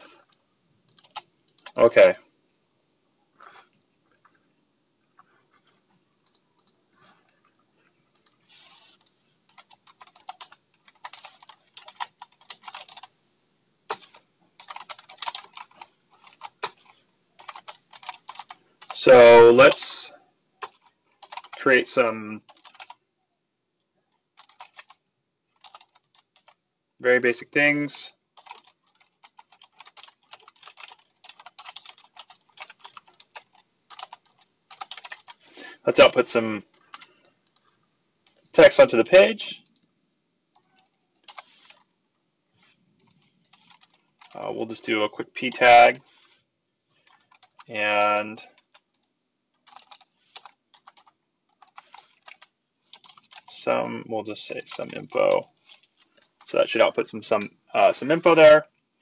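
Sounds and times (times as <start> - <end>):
computer keyboard typing: 0.2 - 2.2, 6.2 - 6.8, 8.1 - 13.1, 13.9 - 20.0, 20.6 - 21.7, 22.4 - 23.0, 24.3 - 26.6, 28.4 - 37.7, 40.6 - 41.9, 43.0 - 44.5, 47.0 - 53.7, 54.6 - 56.6.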